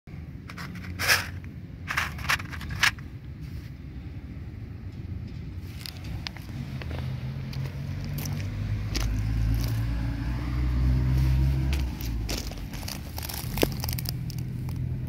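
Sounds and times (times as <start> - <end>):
footsteps on gravel: 5.6 - 10.0, 11.0 - 14.9.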